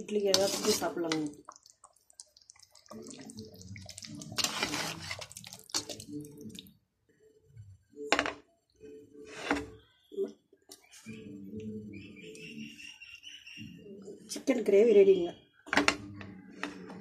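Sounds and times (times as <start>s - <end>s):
ladle stirring thick gravy: 0.0s - 6.8s.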